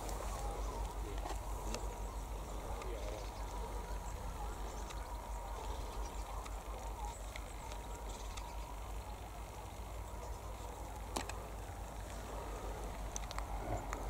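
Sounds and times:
low rumble of wind: 0:00.0 - 0:14.0
faint clicks: 0:12.8 - 0:14.0.

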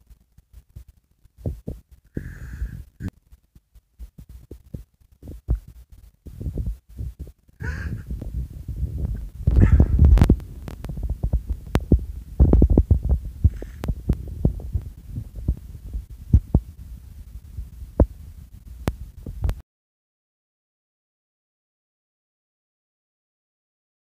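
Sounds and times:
phone microphone handling noise: 0:04.0 - 0:19.6.

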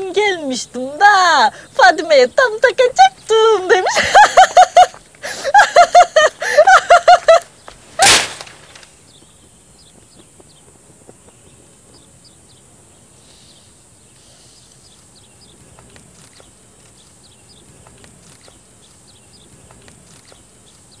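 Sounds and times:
small birds chirping: 0:00.0 - 0:21.0
steady high hiss: 0:00.0 - 0:21.0
faint clicks: 0:15.7 - 0:17.2, 0:17.8 - 0:19.0, 0:19.6 - 0:20.9.

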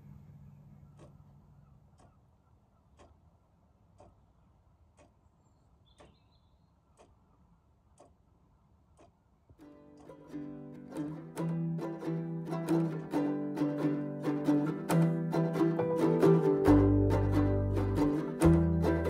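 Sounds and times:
clock ticking: 0:01.9 - 0:13.4
low hum: 0:10.3 - 0:19.0.

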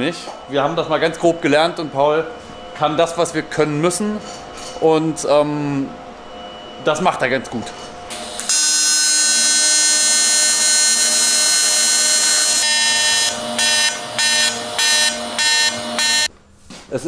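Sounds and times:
welding arc buzzing: 0:08.1 - 0:16.3.

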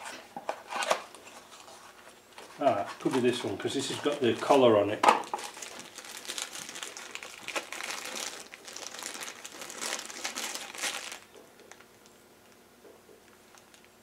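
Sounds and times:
plastic packaging crinkling: 0:02.4 - 0:12.6, 0:13.3 - 0:14.0.

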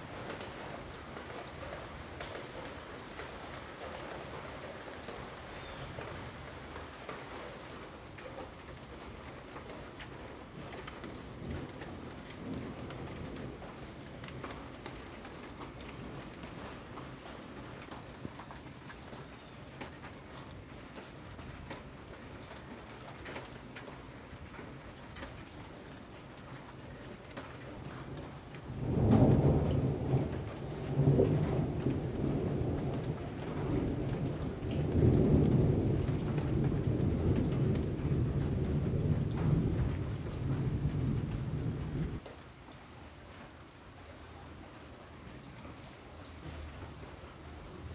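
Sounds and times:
rain on leaves: 0:00.0 - 0:47.9
thunder rumbling: 0:28.7 - 0:42.2.

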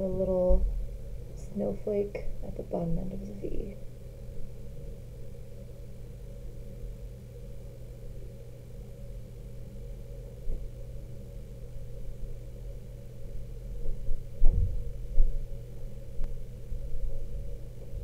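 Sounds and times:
low background hum: 0:00.0 - 0:18.0
soft low thumps: 0:13.8 - 0:15.5.

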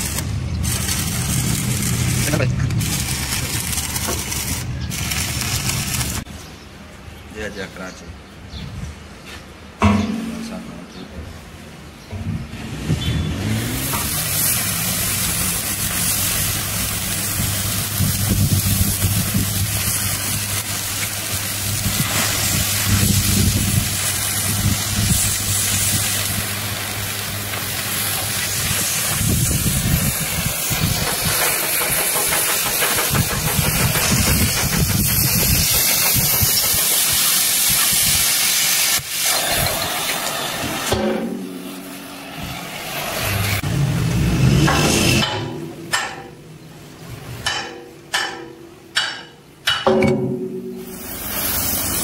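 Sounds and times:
cutting torch hissing: 0:00.0 - 0:06.3, 0:13.3 - 0:44.6, 0:50.8 - 0:52.0.

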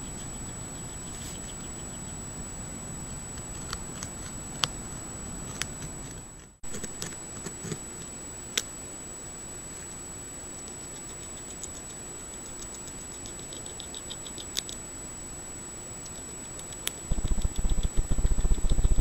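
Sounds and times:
beaver gnawing wood: 0:16.0 - 0:19.0
sharp clicks: 0:16.0 - 0:19.0.

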